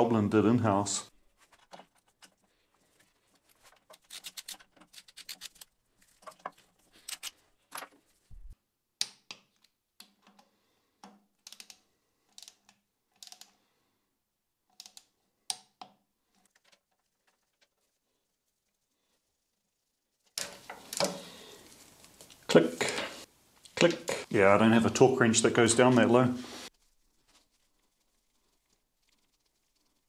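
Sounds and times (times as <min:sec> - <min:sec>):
metallic clicks and taps: 0:09.0 - 0:13.6.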